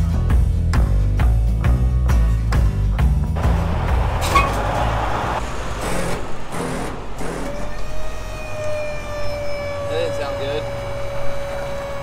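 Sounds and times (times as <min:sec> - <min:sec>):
highway traffic hum: 0:02.5 - 0:12.0
vehicle rushing past: 0:03.4 - 0:09.3.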